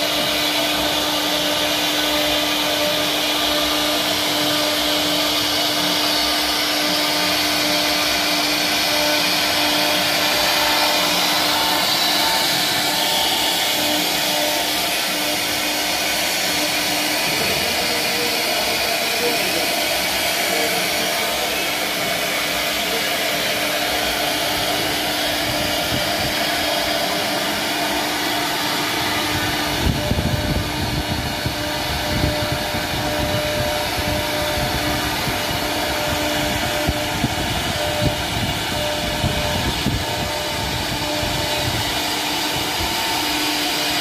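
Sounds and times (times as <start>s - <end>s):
router spindle whine: 0.0s - 44.0s.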